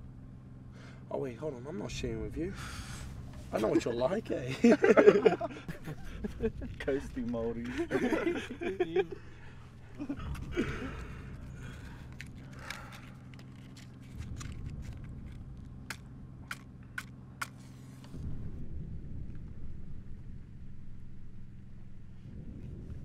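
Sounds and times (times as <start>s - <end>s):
low steady hum: 0.0s - 23.0s
men chuckling: 4.4s - 12.0s.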